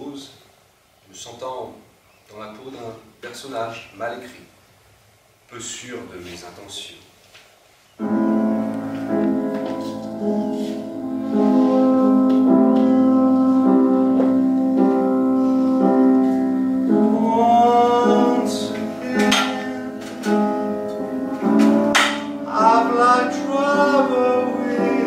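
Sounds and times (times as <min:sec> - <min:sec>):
piano music: 0:08.0 - 0:25.0.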